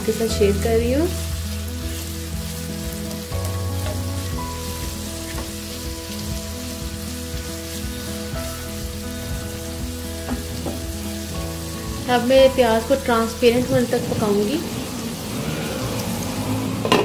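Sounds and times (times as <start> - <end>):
onions sizzling in oil: 0.0 - 17.0
soft background music: 0.0 - 17.0.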